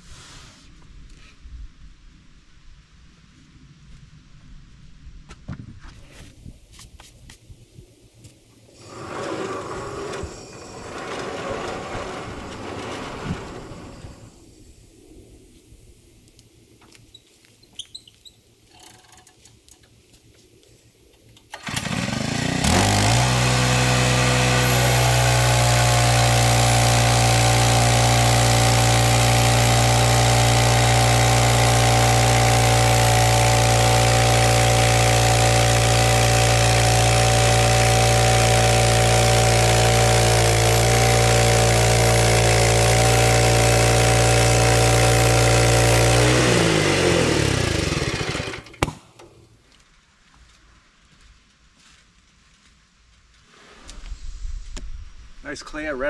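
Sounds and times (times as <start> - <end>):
sawmill engine running: 8.7 - 14.5, 21.5 - 49.3.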